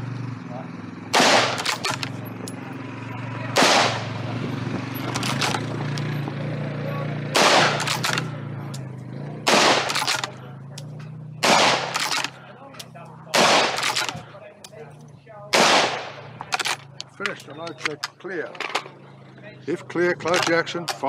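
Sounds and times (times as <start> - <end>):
loud gunshots: 1.1 - 2.1, 3.5 - 4.4, 7.3 - 8.2, 9.4 - 10.3, 11.4 - 12.4, 13.3 - 14.2, 15.5 - 16.7.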